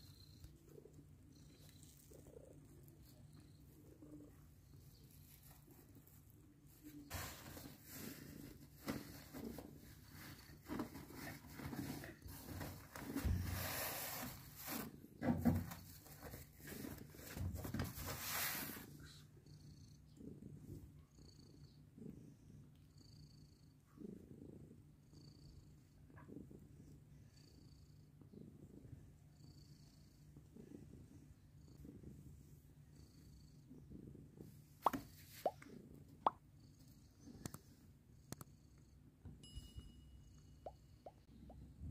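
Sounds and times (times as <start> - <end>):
cat purring: 0.0 - 14.2, 15.8 - 39.3, 40.2 - 41.9
rustling against fur: 4.9 - 14.9.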